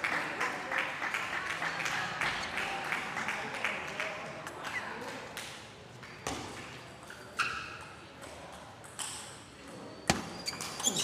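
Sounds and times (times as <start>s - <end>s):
table tennis ball bouncing: 7.6s - 10.8s.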